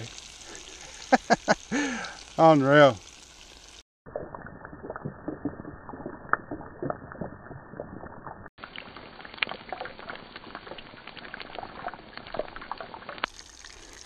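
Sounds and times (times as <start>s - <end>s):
fish frying in sizzling oil: 0.0s - 3.8s, 8.6s - 14.0s.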